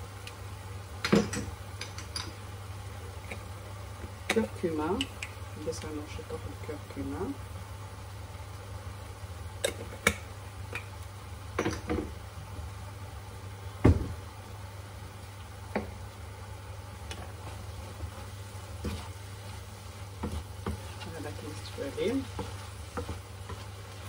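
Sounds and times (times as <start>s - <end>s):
meat frying in a pan: 0.0s - 24.0s
dull thump: 13.8s - 14.2s.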